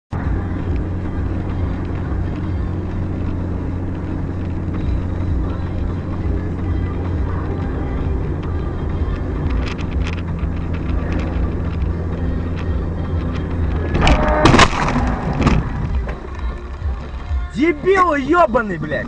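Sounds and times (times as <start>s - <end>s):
car engine and road hum: 0.1s - 19.0s
impact and glass shattering: 14.0s - 15.9s.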